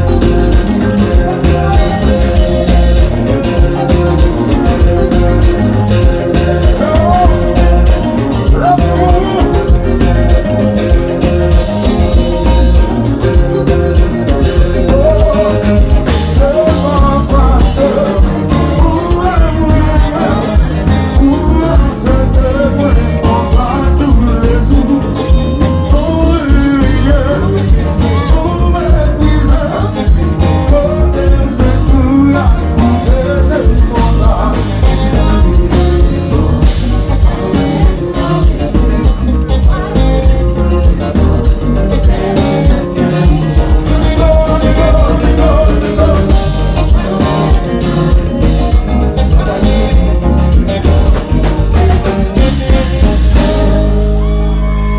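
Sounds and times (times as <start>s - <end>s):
bass guitar: 0.0s - 54.9s
drums: 0.0s - 54.9s
electric guitars: 0.0s - 54.9s
lead singer on microphone: 0.0s - 54.9s.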